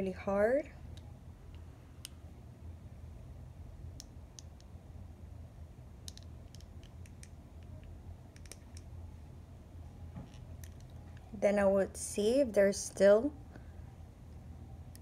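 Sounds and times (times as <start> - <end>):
steady low hum: 0.0 - 15.0
metal eyeglass frame clicking: 8.4 - 8.9.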